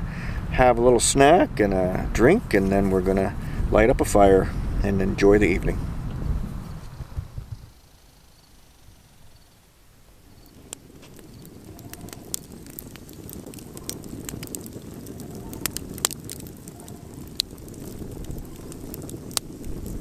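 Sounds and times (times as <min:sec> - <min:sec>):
campfire rushing: 0:00.1 - 0:07.8, 0:08.6 - 0:20.0
fire crackles and pops: 0:08.6 - 0:20.0.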